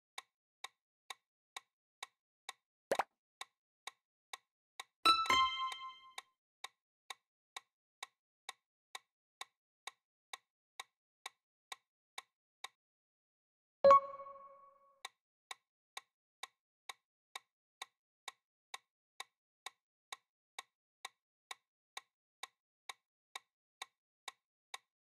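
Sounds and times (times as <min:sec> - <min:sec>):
low two-tone chime: 0:13.9 - 0:14.7.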